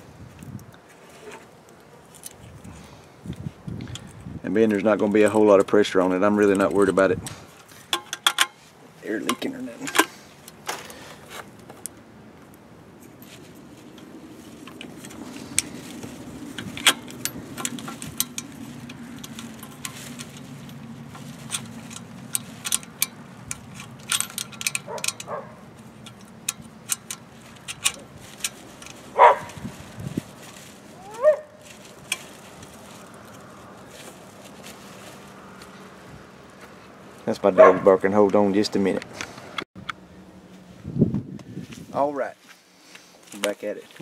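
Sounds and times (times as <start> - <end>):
clicks of hands working wires: 6.6 - 8.6, 13.9 - 29.6
dog barking: 24.9 - 25.6, 29.2 - 29.6, 31.1 - 31.5, 37.6 - 37.9.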